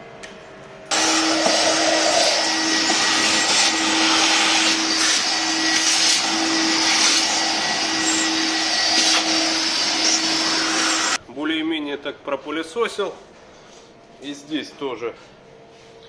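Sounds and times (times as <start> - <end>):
vacuum cleaner humming: 0.9 - 11.2.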